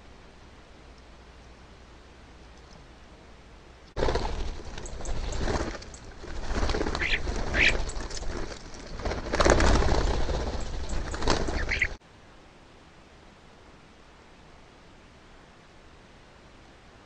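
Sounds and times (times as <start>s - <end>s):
harsh bird calls: 4.0s - 8.5s, 9.5s - 12.0s
birds wingbeats and scuffling: 4.0s - 12.0s.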